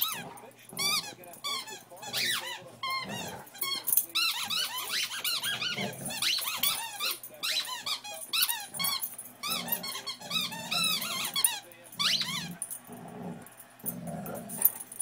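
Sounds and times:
high-pitched squeaks: 0:00.8 - 0:12.5.

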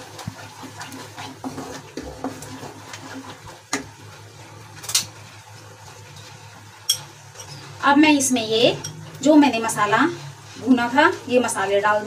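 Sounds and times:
spatula scraping paste in pan: 0:00.0 - 0:03.6.

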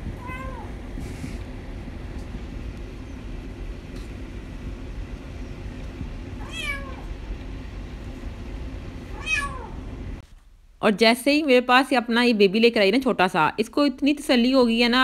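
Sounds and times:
steady low rumble: 0:00.0 - 0:10.8
cat meowing: 0:00.2 - 0:00.7, 0:06.4 - 0:07.1, 0:09.1 - 0:09.8.

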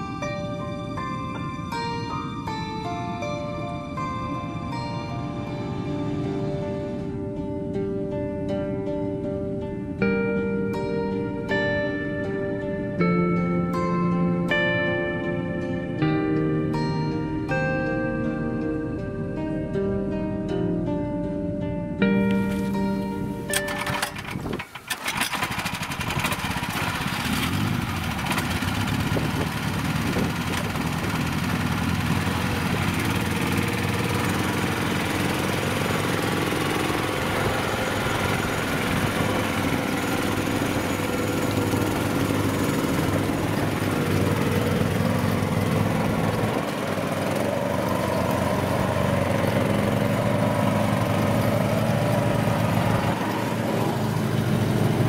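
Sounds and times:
small engine under load: 0:22.2 - 0:55.0.

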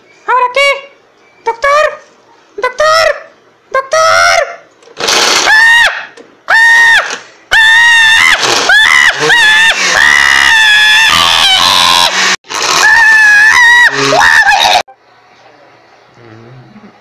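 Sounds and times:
high-pitched voice screaming: 0:02.6 - 0:04.6, 0:05.4 - 0:14.9.

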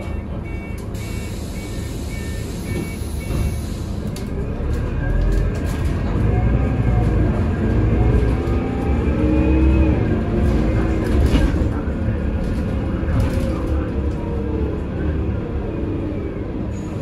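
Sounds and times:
two-pitch warning beep: 0:00.0 - 0:03.7
bus engine rumble and whine: 0:00.0 - 0:17.0.

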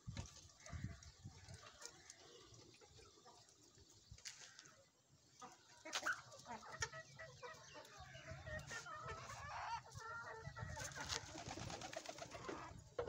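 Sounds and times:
chickens and chicks calling: 0:05.2 - 0:13.0.

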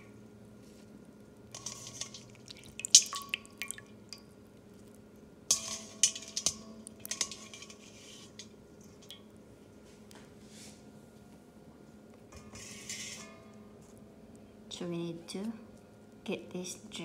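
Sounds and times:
water splashing in metal bowl: 0:01.5 - 0:04.4, 0:05.5 - 0:09.3.

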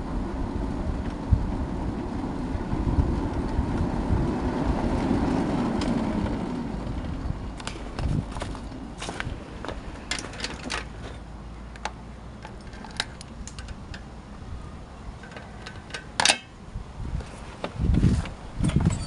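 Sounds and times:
metal clank: 0:15.2 - 0:16.6.

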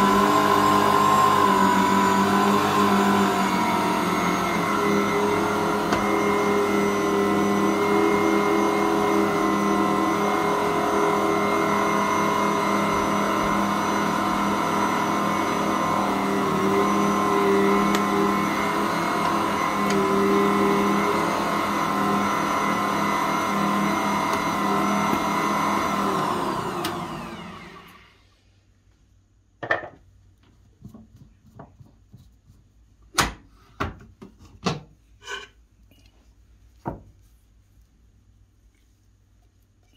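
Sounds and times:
mixer winding down: 0:00.0 - 0:28.3
stand mixer motor whine: 0:00.0 - 0:28.3.

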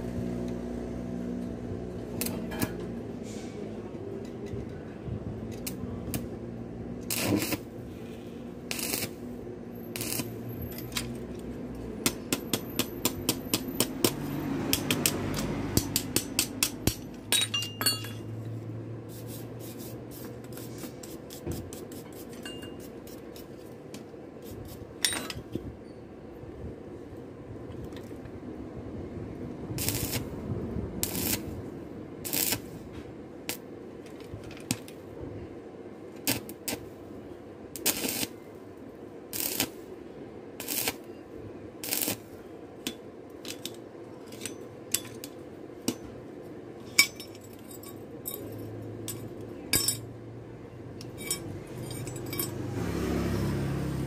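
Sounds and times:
metal clinking and tapping: 0:12.1 - 0:18.3, 0:22.3 - 0:22.9, 0:42.9 - 0:46.1, 0:46.9 - 0:50.1, 0:51.0 - 0:52.6.

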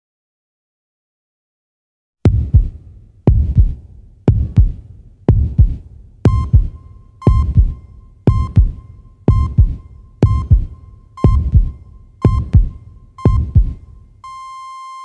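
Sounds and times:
heartbeat double thump: 0:02.3 - 0:14.2
high electronic beep: 0:06.3 - 0:15.0.

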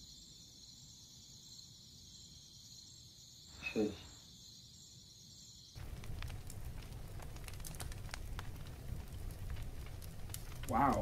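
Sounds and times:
crickets trilling: 0:00.0 - 0:11.0
crackling hiss with ticks: 0:05.8 - 0:11.0.

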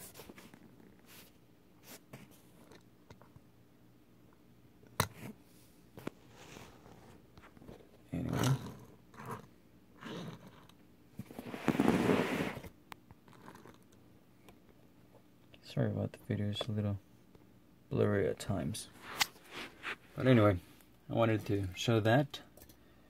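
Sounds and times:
toy car scraping on fabric mat: 0:11.3 - 0:12.7.

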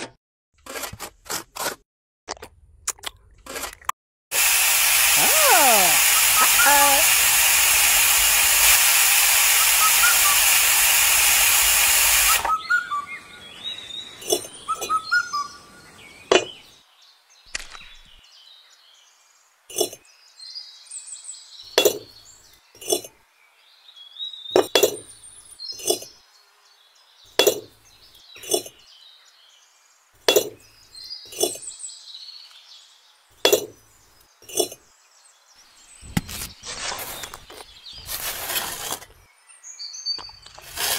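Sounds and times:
loud steady hiss: 0:04.4 - 0:12.5
faint birdsong: 0:12.3 - 0:40.7
clay bricks clinking: 0:24.6 - 0:25.2, 0:27.4 - 0:27.7, 0:30.3 - 0:30.6, 0:31.3 - 0:31.6.

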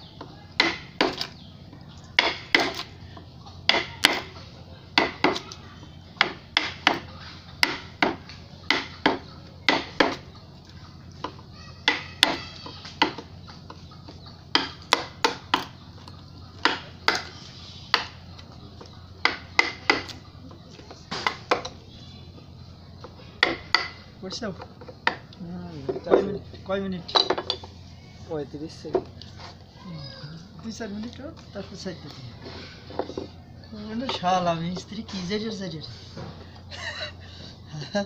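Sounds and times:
wooden mallet striking gouge: 0:00.6 - 0:01.3, 0:06.2 - 0:10.2, 0:19.2 - 0:20.2, 0:23.4 - 0:24.0.

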